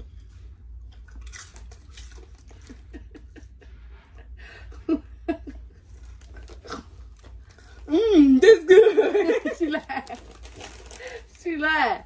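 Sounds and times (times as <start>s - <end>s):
popcorn chewing crunches: 0.9s - 2.9s, 5.9s - 8.0s
snack bags rustling: 5.7s - 11.9s.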